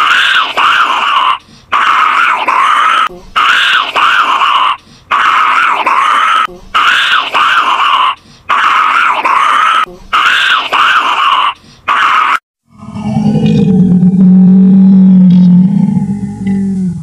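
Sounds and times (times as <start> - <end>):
monkey calling: 0.0 - 12.4.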